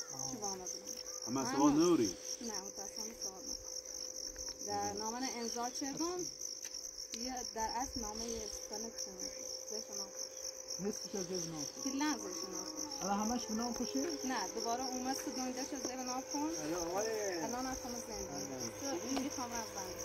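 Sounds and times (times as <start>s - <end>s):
crickets chirping: 0.0s - 20.0s
people talking quietly: 7.2s - 20.0s.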